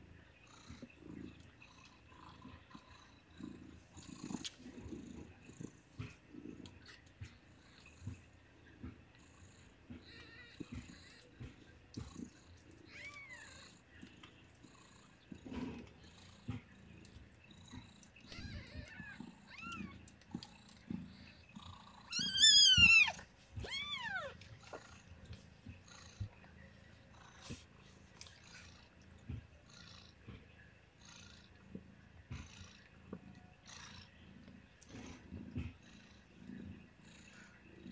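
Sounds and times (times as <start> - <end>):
cat purring softly: 0.0 - 37.9
kittens squeaking: 18.2 - 20.0, 22.0 - 24.4.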